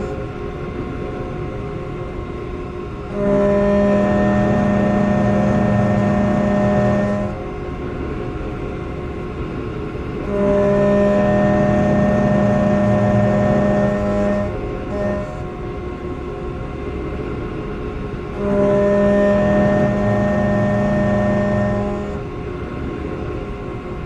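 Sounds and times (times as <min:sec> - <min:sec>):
milling machine hum and whine: 0:00.0 - 0:24.0.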